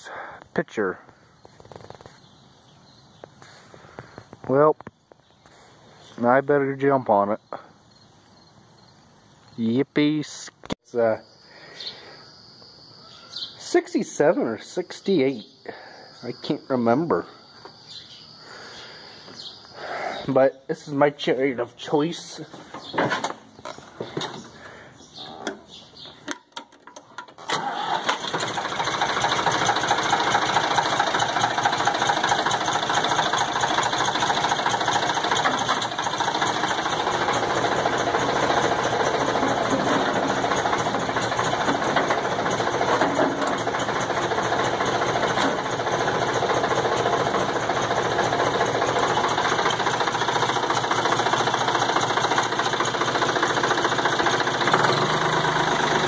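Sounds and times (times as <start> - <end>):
tractor engine starting and running: 20.2 - 56.0.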